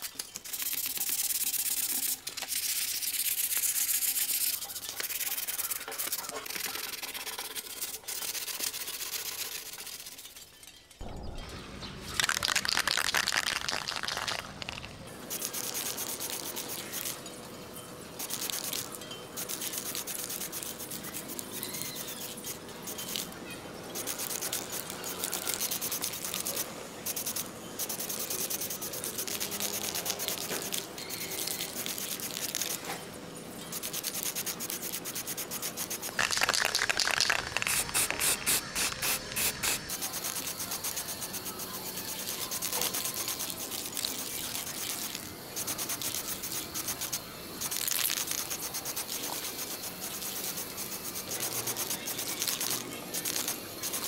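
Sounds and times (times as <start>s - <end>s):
aerosol spray can hissing: 33.8s - 54.0s.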